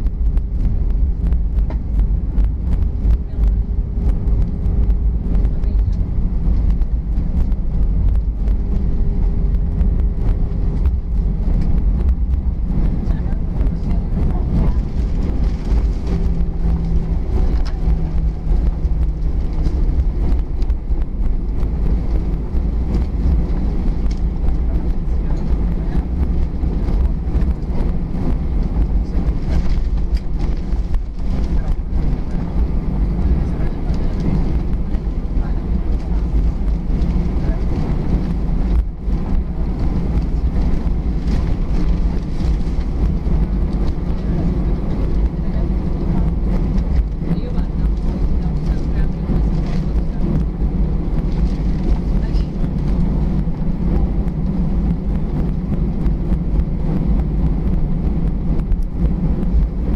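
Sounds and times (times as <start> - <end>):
faint steady hum: 0.0 - 59.9
low rumble of wheels and engines: 0.0 - 59.9.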